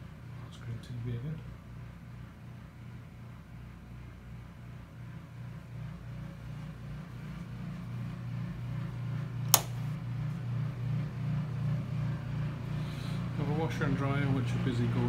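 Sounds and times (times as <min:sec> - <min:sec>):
washer and dryer humming: 0:00.0 - 0:15.0
sharp click: 0:09.5 - 0:09.8.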